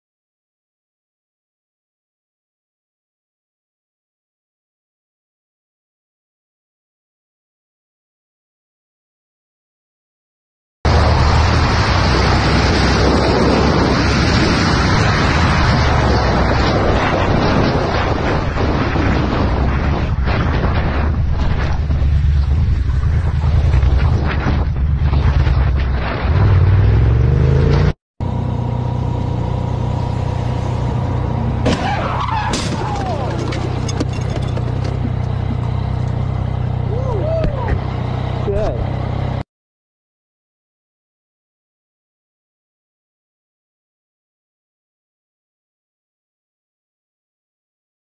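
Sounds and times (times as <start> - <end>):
low rumble of car: 10.9 - 39.4
road and wind noise: 10.9 - 39.4.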